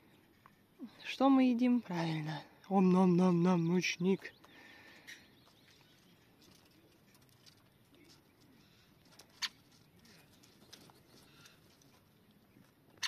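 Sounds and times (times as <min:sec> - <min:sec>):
birds pecking and scratching: 0:00.0 - 0:00.8, 0:03.4 - 0:13.0.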